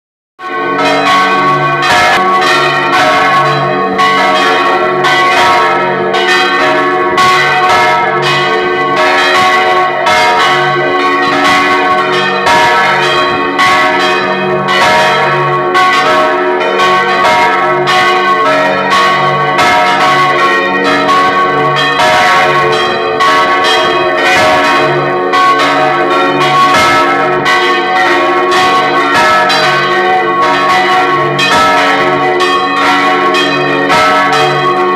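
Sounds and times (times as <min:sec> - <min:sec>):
church bells pealing: 0:00.4 - 0:34.9
deep bell tolling: 0:00.4 - 0:34.9.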